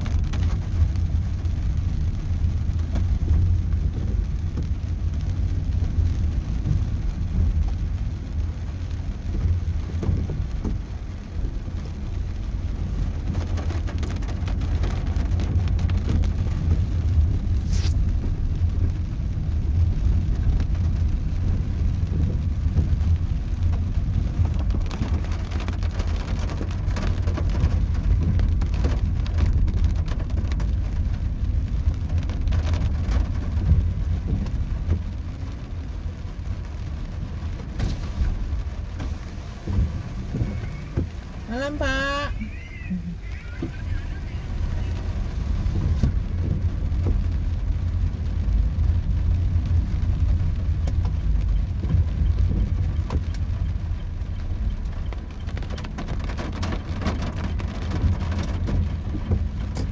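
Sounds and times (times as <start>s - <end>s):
engine and tyre rumble: 0.0s - 59.9s
rain hitting car roof: 0.0s - 59.9s.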